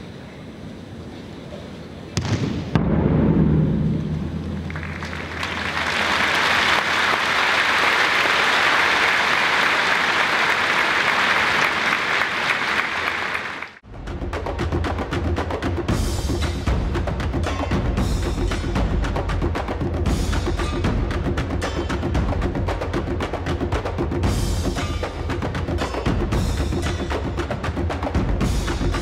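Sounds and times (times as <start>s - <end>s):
large audience applauding: 4.7s - 13.8s
percussive music with wood-block beat: 13.8s - 29.0s.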